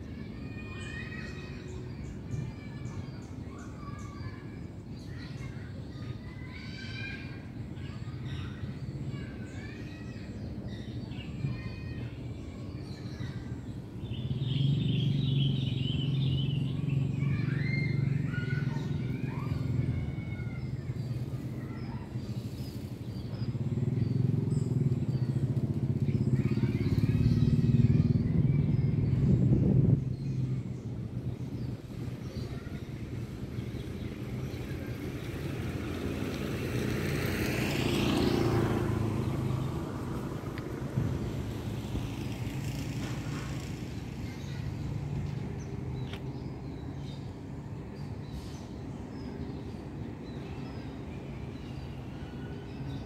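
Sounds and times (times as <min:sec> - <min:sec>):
small birds chirping: 0:00.0 - 0:53.0
vehicle engine passing: 0:14.2 - 0:21.5, 0:22.3 - 0:46.2
steady low rumble: 0:23.4 - 0:34.7.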